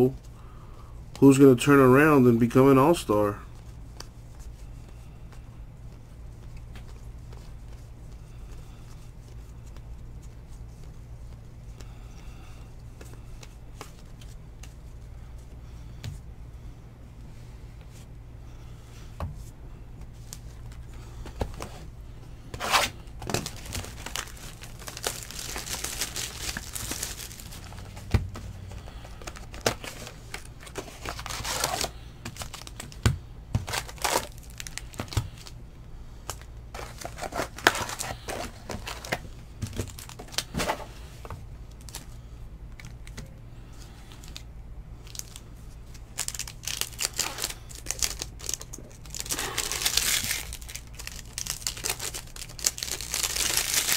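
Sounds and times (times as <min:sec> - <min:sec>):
faint low hum: 0:00.0 - 0:53.9
foil wrappers crinkling: 0:22.6 - 0:28.1, 0:28.7 - 0:35.6, 0:36.2 - 0:40.9, 0:44.1 - 0:53.9.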